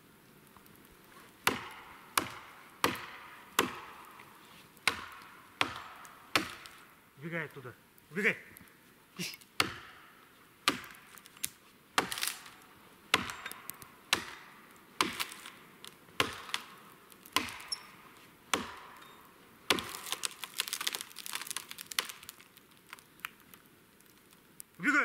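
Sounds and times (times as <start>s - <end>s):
wood cracking and splintering: 0.5s - 6.9s, 10.6s - 17.9s, 18.5s - 24.8s
axe chopping tree: 1.4s - 7.0s, 9.4s - 23.0s.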